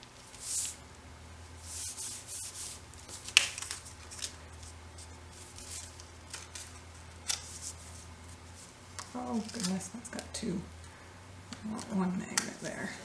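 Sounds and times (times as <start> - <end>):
paper rubbing swishes: 0.2 - 0.8, 1.6 - 8.8.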